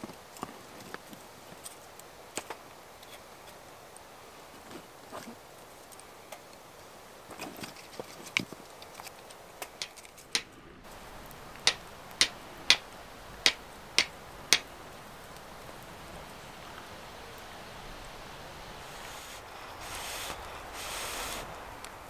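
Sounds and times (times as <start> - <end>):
fire steel striking flint: 11.6 - 14.7.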